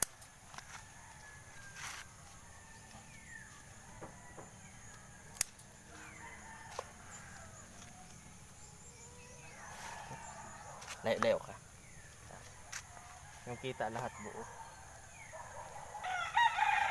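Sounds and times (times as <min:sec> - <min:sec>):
faint rooster crowing: 0:00.6 - 0:11.6, 0:12.4 - 0:16.9
scissors snipping: 0:05.3 - 0:05.7.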